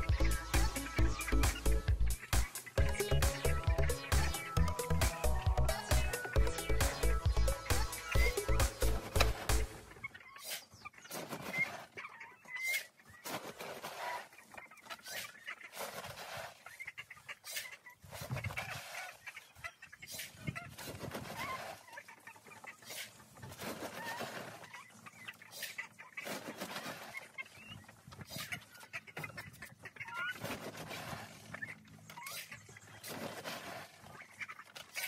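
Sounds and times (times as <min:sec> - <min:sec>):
hens clucking: 0:00.0 - 0:35.0.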